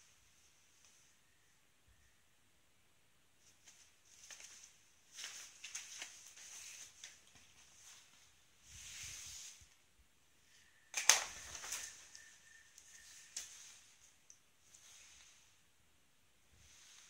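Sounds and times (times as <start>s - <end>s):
duvet fabric rustling: 3.4s - 10.0s, 10.6s - 17.0s.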